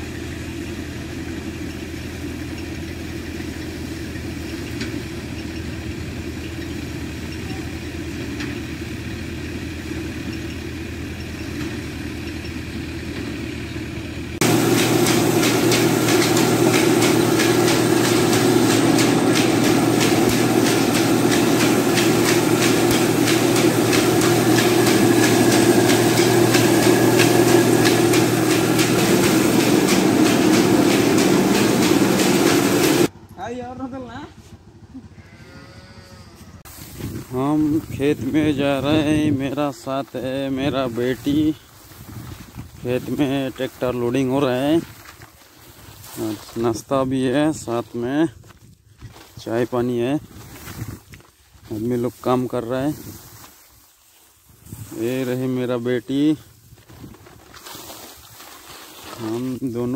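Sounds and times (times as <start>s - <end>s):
thresher engine humming: 0.0s - 41.7s
grain mill clattering: 14.4s - 33.1s, 54.8s - 56.4s, 57.4s - 59.9s.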